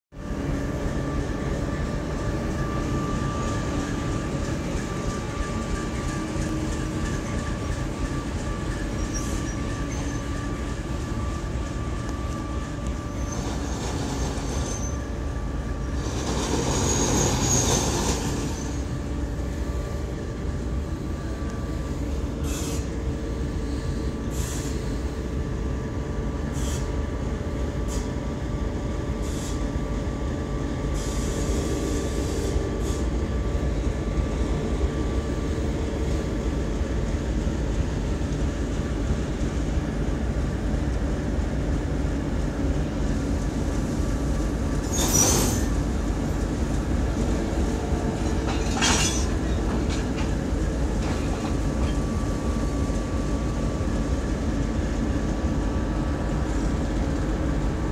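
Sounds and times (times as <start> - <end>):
diesel locomotive engines rumbling: 0.1 - 57.9
wheels clacking over rail joints: 44.8 - 52.1.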